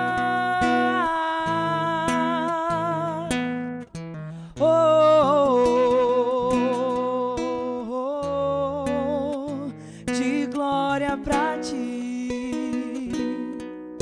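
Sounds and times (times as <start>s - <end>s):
woman singing long notes: 0.0s - 3.4s.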